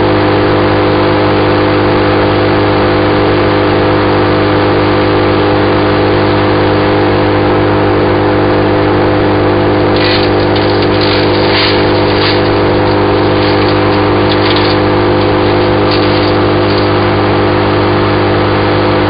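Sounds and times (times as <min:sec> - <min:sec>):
wood chipper running: 0:09.6 - 0:17.8.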